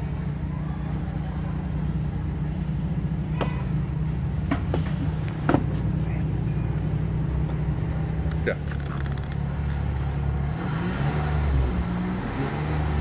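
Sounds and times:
car engine idling: 0.0s - 10.6s.

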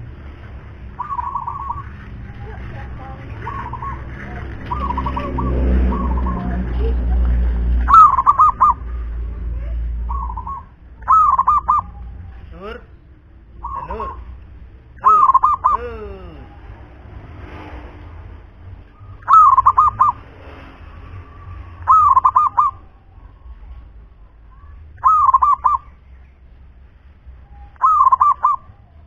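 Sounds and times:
dove cooing: 0.9s - 7.0s, 7.8s - 12.3s, 15.0s - 16.6s, 18.9s - 20.2s, 21.3s - 23.5s, 25.0s - 25.9s, 27.5s - 29.0s.

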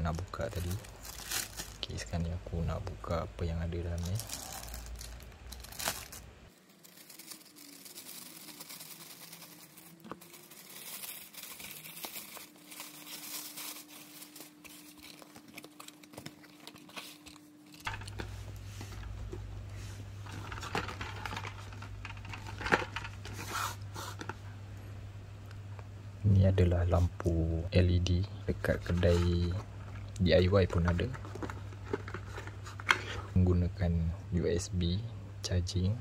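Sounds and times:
plastic bag crinkling and tearing: 0.0s - 2.1s, 3.8s - 18.2s
low steady hum: 0.0s - 36.0s.

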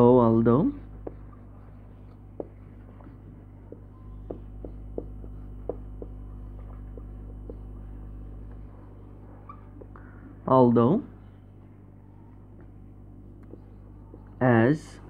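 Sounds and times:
low electrical hum: 0.0s - 15.0s
marker ticking on whiteboard: 3.7s - 7.8s.

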